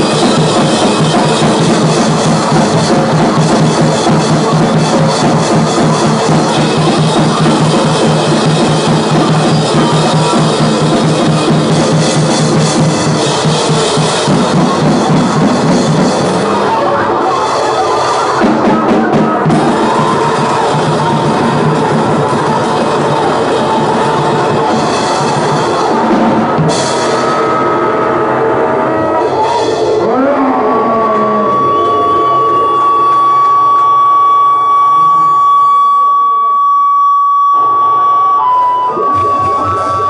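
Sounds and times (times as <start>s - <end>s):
pounding drums: 0.0s - 33.4s, 39.0s - 40.0s
dense distorted noise: 0.0s - 40.0s.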